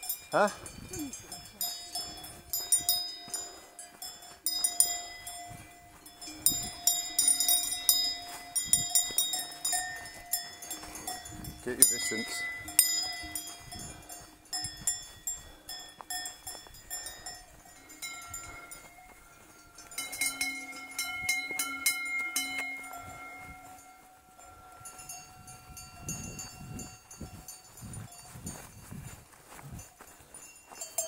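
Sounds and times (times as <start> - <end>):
cowbells clanging: 0.0 - 31.0.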